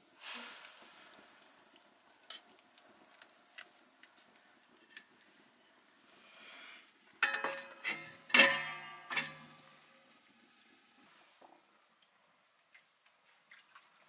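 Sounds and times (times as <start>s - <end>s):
steel bowl clanking on wok rim: 7.2s - 9.8s.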